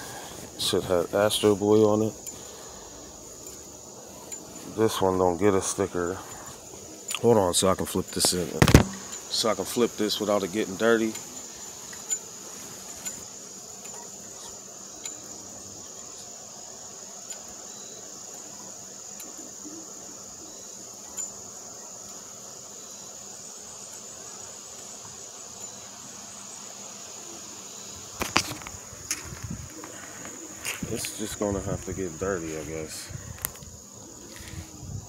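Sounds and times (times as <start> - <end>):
high-pitched insect drone: 0.0 - 35.0
loud knock: 8.6 - 9.1.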